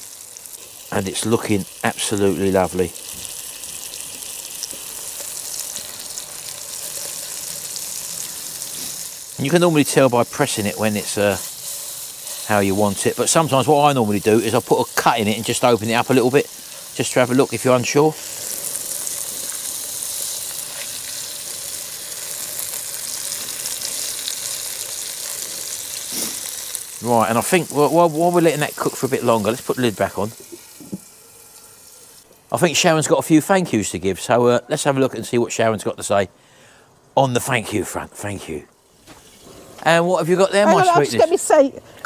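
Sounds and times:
steak sizzling in a frying pan: 0.0s - 32.8s.

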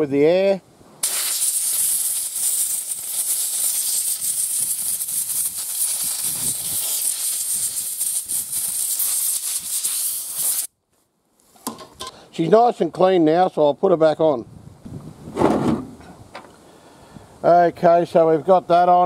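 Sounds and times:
compressed air blow gun hissing: 1.0s - 10.7s.

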